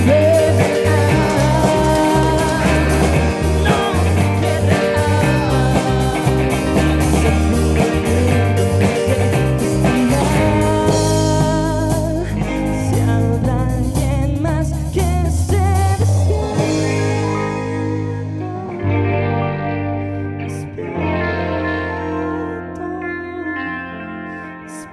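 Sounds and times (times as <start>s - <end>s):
drum kit: 0.0s - 18.1s
bass guitar: 0.0s - 24.9s
electric guitars: 0.0s - 24.9s
keyboards: 0.0s - 24.9s
sung lead vocal: 0.0s - 24.9s.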